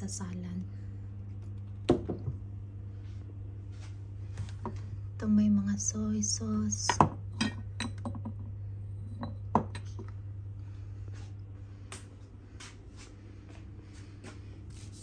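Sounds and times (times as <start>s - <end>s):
steady low hum: 0.0s - 15.0s
glass bottles clinking: 7.0s - 8.4s.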